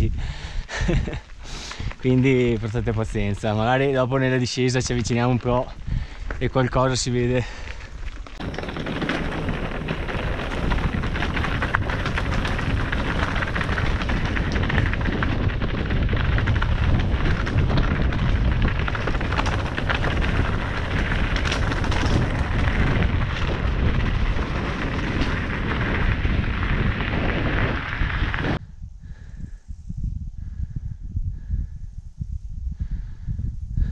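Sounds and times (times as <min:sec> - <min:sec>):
wind on camera microphone: 0:00.0 - 0:33.9
tyres crunching on gravel: 0:01.7 - 0:28.6
bike rattling and knocking: 0:04.8 - 0:28.6.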